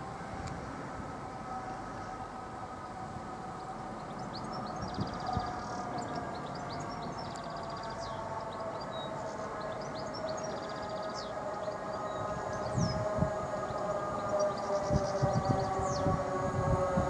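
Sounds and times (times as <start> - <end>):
train humming: 0.0 - 17.0
songbird singing with trill: 3.5 - 17.0.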